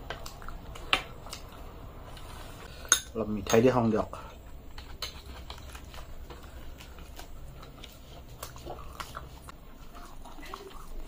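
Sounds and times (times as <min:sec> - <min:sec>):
chewing: 0:04.8 - 0:11.0.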